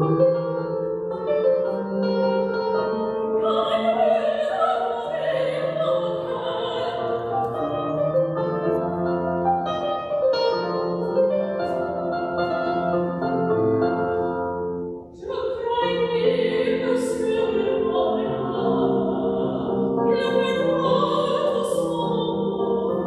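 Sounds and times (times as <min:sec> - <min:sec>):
digital piano: 0:00.0 - 0:23.0
operatic singing with vibrato: 0:01.1 - 0:08.0, 0:15.1 - 0:23.0.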